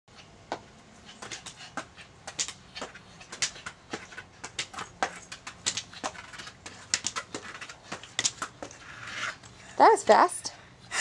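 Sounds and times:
shoes scuffing on concrete: 0:00.1 - 0:10.3
crutch tips tapping on concrete: 0:00.5 - 0:08.8.

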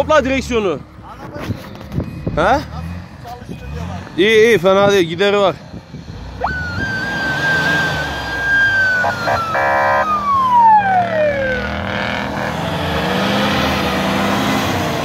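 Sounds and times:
vehicle engine high whine: 0:00.0 - 0:15.0
short honk-like blast: 0:09.0 - 0:10.1.

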